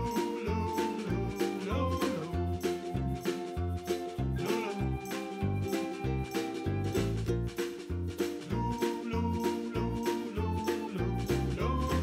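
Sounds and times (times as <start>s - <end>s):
upbeat music with bouncing bass: 0.0s - 12.0s.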